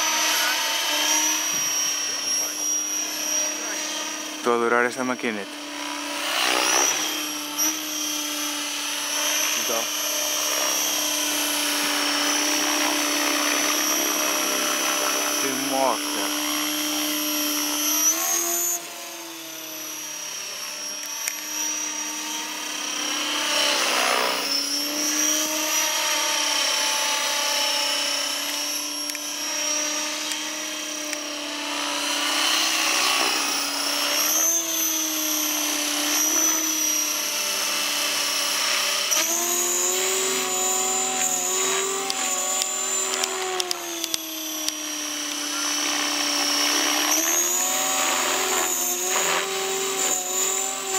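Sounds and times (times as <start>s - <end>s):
helicopter motor whine: 0.0s - 50.9s
rotor blades buzzing: 0.0s - 50.9s.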